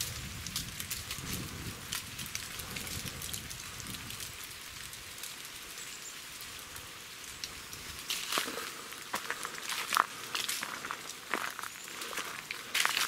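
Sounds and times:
scattered crackles: 0.0 - 13.0
steady hiss: 0.0 - 13.0
footsteps crunching on leaves: 7.6 - 13.0.

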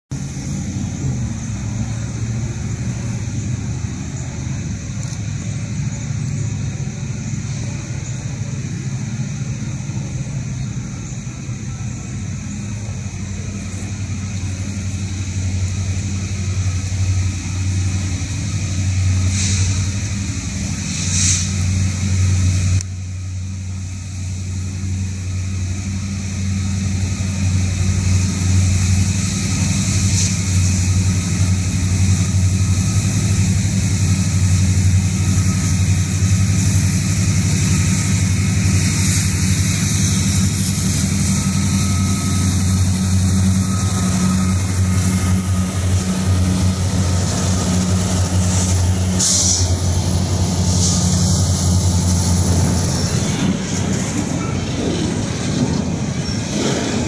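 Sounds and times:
locomotive engine drone: 0.1 - 57.0.

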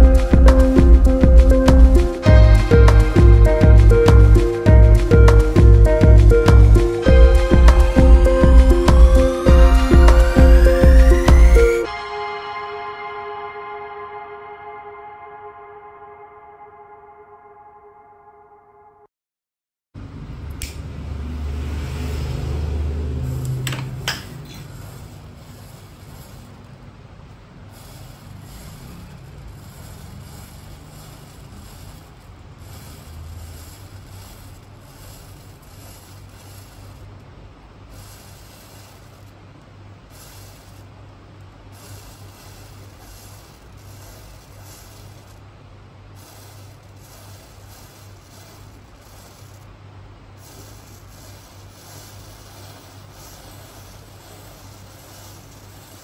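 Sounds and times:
steady low hum: 0.0 - 12.0, 20.0 - 56.0
matches burning hiss: 41.7 - 45.4, 46.2 - 49.7, 50.4 - 56.0.

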